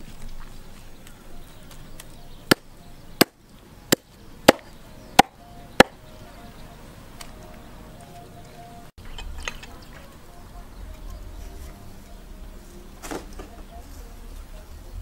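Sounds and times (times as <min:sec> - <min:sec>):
hatchet chopping into wooden block: 0:03.2 - 0:06.0.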